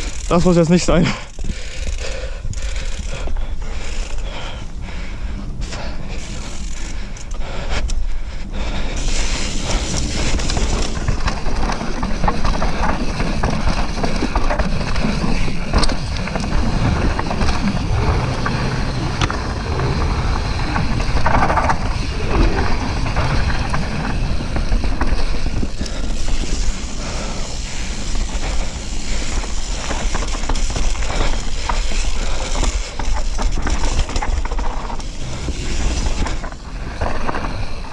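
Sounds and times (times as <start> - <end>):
bike rattling and knocking: 0.0 - 7.8, 8.9 - 37.9
wind rumbling on microphone: 1.3 - 37.9
tyres crunching over gravel: 9.0 - 37.9.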